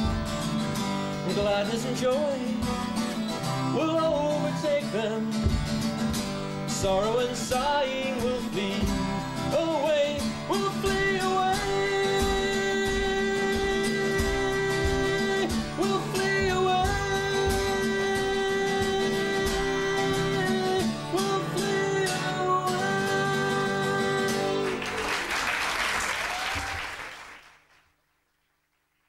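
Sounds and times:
strummed acoustic guitar: 0.0 - 25.0
man singing long held notes: 6.8 - 24.8
audience applause: 24.6 - 29.0.

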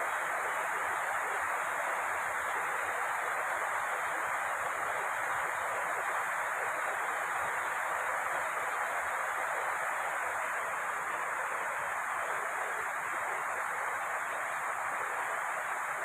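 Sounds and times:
rain on a metal roof: 0.0 - 16.0.

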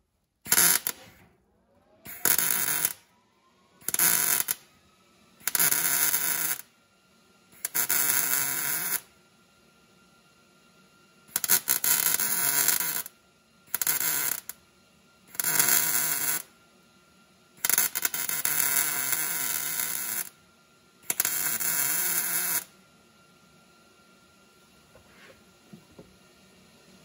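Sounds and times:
welding hiss and crackle: 0.5 - 1.2, 2.1 - 3.0, 3.8 - 4.6, 5.4 - 6.6, 7.6 - 9.0, 11.3 - 13.1, 13.7 - 14.5, 15.3 - 16.5, 17.6 - 20.3, 21.1 - 22.7.

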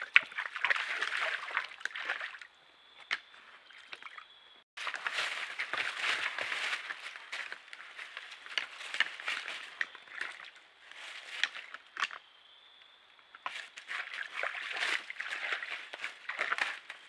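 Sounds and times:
deer scuffling through dry leaves: 4.8 - 11.8, 13.5 - 17.0.

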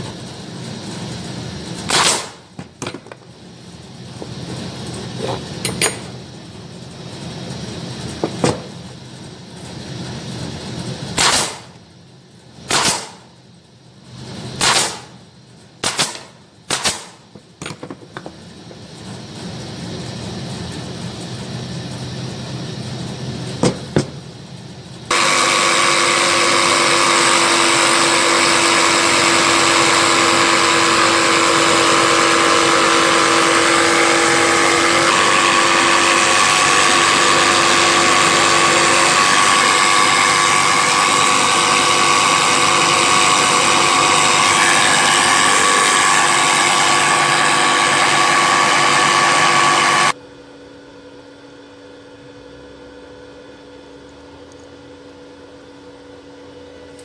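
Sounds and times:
loud motor running: 0.0 - 11.8, 25.0 - 50.2
wooden parts knocking on workbench: 2.6 - 3.2, 17.6 - 18.3.

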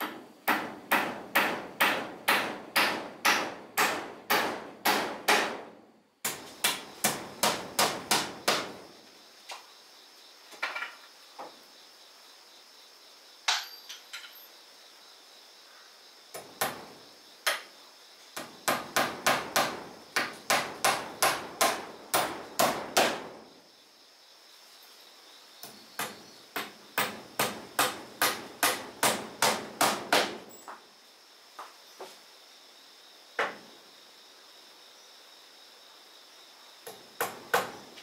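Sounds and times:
hammer nailing wooden boards: 0.0 - 8.8, 16.3 - 16.9, 18.4 - 23.4, 25.6 - 30.5, 36.9 - 37.8
high insect buzz: 6.2 - 38.0.

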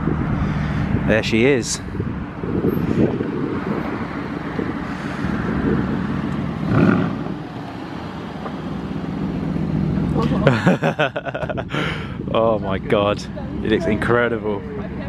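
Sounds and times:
wind on microphone: 0.0 - 7.6, 11.3 - 12.4
car engine running at low speed: 0.0 - 15.0.

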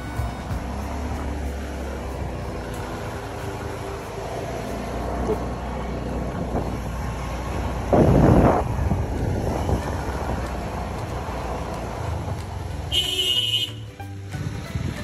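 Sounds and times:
loud rush of noise: 0.0 - 12.8
wind on microphone: 6.2 - 12.6.

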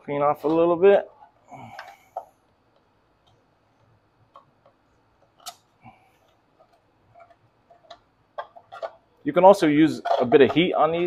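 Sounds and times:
knife scraping plastic edges: 6.2 - 9.1, 9.8 - 11.0.

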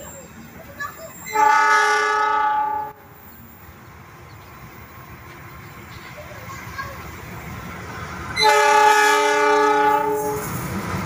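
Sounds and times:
diesel locomotive horn blast: 1.3 - 3.2, 8.3 - 10.6.

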